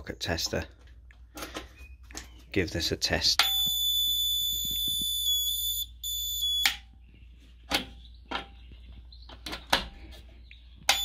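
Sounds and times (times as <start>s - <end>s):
high-pitched buzzer tone: 3.4s - 6.8s.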